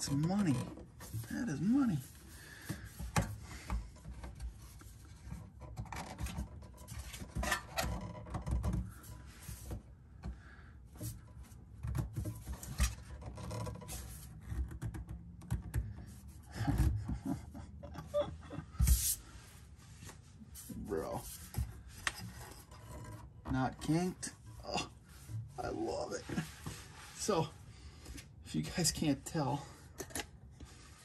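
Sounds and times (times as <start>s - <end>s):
rubber hose scraping against metal: 0.0s - 9.7s, 10.9s - 14.9s, 18.6s - 28.1s.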